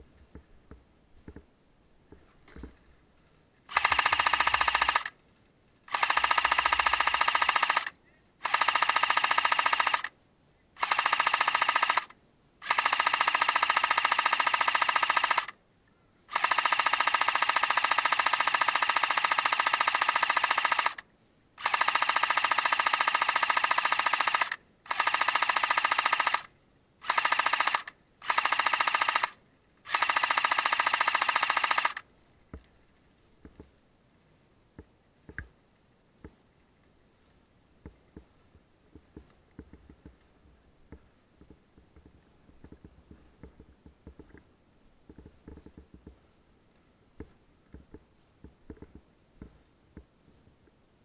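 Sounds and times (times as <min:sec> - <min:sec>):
airsoft gun firing bursts: 0:03.7 - 0:05.2, 0:05.9 - 0:10.1, 0:10.8 - 0:15.6, 0:16.3 - 0:21.0, 0:21.6 - 0:32.0
faint clicks: 0:27.2 - 0:33.8, 0:34.7 - 0:50.8.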